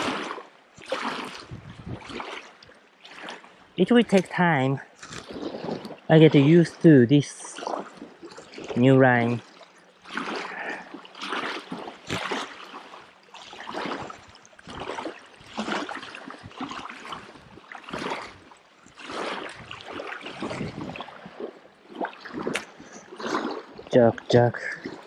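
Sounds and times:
waves lapping on gravel: 0.0s - 25.0s.

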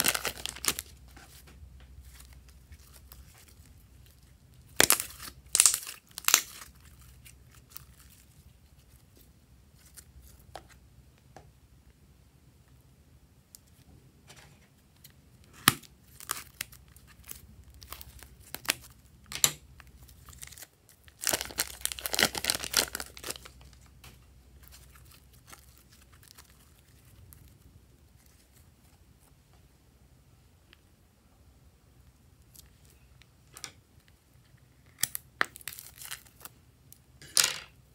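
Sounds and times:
plastic bag crinkling: 0.0s - 1.4s, 19.9s - 23.9s.

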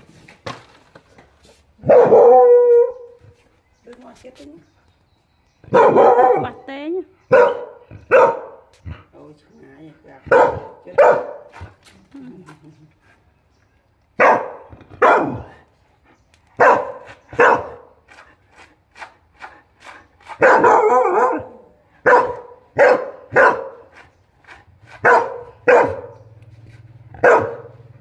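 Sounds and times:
dog barking: 1.8s - 3.1s, 5.7s - 6.7s, 7.3s - 8.7s, 10.3s - 11.6s, 14.2s - 15.5s, 16.6s - 17.9s, 20.4s - 23.9s, 25.0s - 26.2s, 27.2s - 27.9s.

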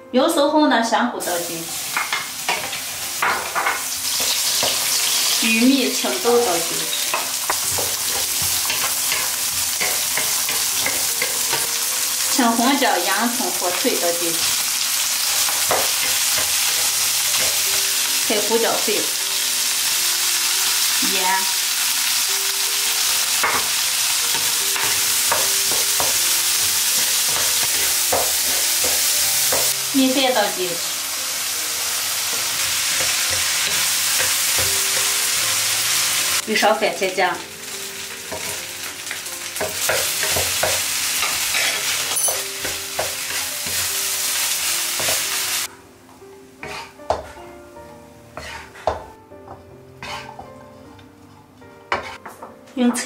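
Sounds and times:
food sizzling in oil: 1.2s - 45.8s, 46.6s - 49.1s, 50.0s - 52.2s
spatula scraping and knocking pan: 7.1s - 11.8s, 24.3s - 29.8s, 32.3s - 35.2s, 39.6s - 44.0s, 46.6s - 47.5s, 48.4s - 52.5s
utensil scraping and knocking pan: 46.6s - 47.4s, 48.4s - 49.1s, 50.0s - 50.5s, 51.9s - 52.3s.

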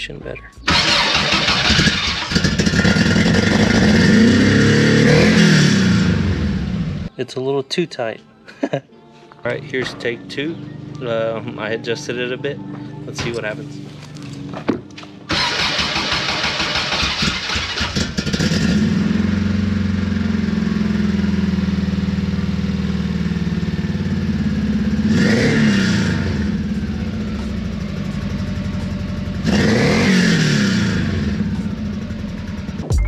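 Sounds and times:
car engine starting and idling: 0.0s - 7.1s, 13.1s - 33.0s
engine revving: 0.6s - 7.1s, 15.3s - 33.0s.

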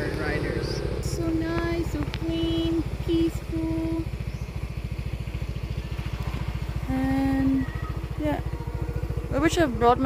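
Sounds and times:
motorbike engine running: 0.0s - 10.0s.

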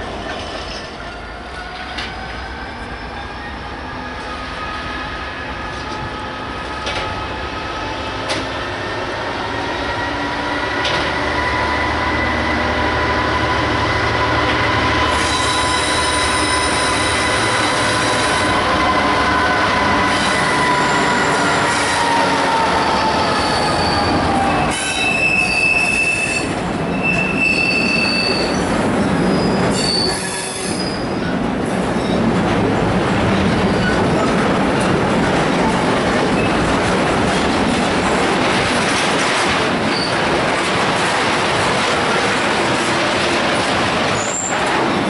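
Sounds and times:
diesel locomotive engine passing: 0.0s - 27.5s
wheels rumbling on rail: 0.0s - 45.0s
high-pitched wheel squeals: 15.1s - 18.5s, 22.8s - 31.2s.

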